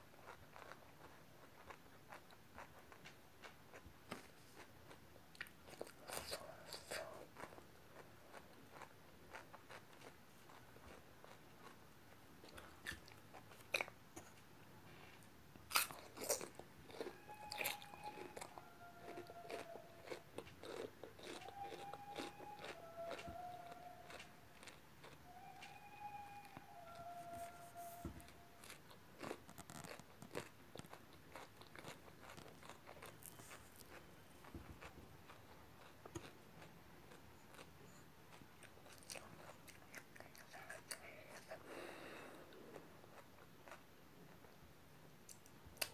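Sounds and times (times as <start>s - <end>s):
crunchy chewing of food: 0.0s - 14.4s, 15.0s - 25.8s, 26.4s - 44.6s
faint held tones: 21.3s - 28.7s.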